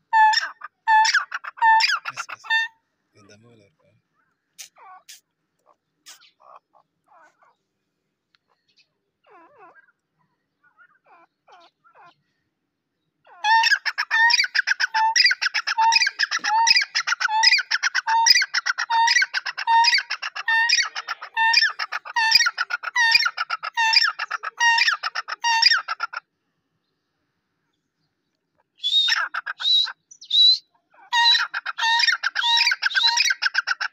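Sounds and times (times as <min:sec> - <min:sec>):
francolin calling: 0:13.4 - 0:26.2.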